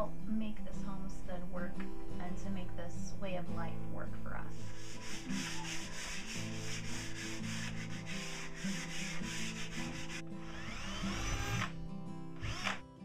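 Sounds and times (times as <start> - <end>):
rhythmic rasping noise: 4.6 - 11.8
cordless drill boring into wood: 7.8 - 11.8, 12.4 - 12.8.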